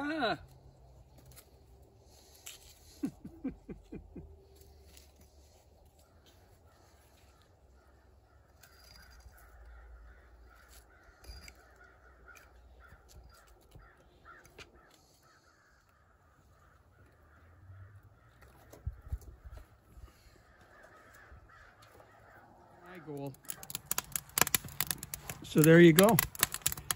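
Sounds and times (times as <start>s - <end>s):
crows cawing: 2.8s - 26.9s
hatchet splitting kindling: 23.4s - 26.9s.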